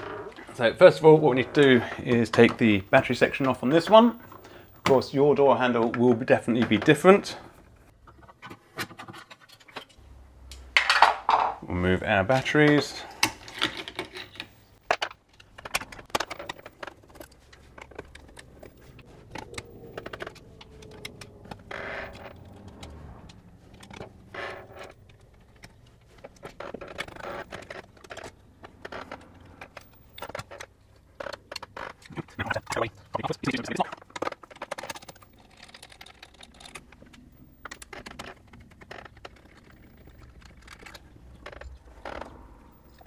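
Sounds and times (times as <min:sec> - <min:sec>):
clicks and rattles of lock handling: 0:07.6 - 0:11.1, 0:12.4 - 0:43.0.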